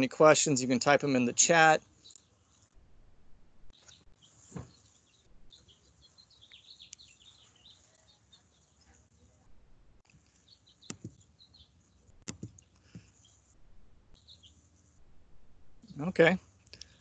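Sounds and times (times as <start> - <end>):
faint high chirping: 3.7 - 9.6, 10.2 - 15.0.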